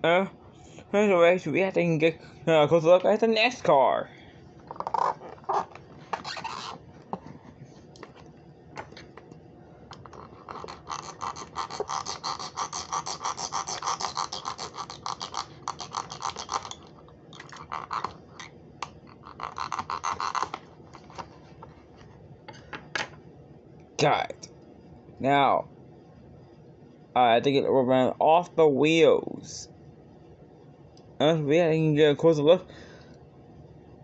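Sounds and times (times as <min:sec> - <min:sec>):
blade sawing plastic packaging: 0:10.0 - 0:16.9.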